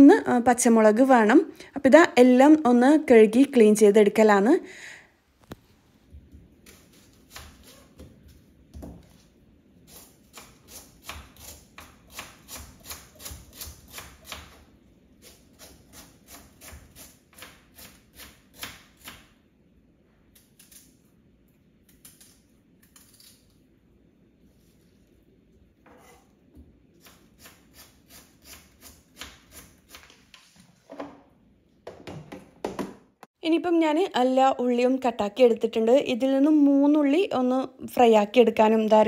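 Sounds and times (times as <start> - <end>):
knife chopping on wooden board: 10.3 - 14.6.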